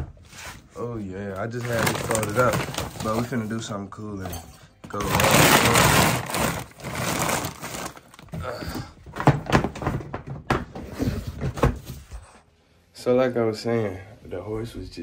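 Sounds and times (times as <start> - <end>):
loud rustling: 5.0 - 8.3
knocks and clunks of handling: 7.7 - 12.2.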